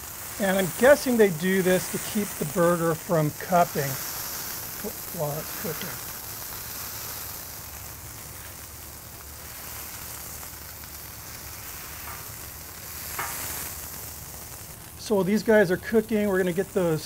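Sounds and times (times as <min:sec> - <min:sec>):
beef patties sizzling on griddle: 0:00.0 - 0:17.0.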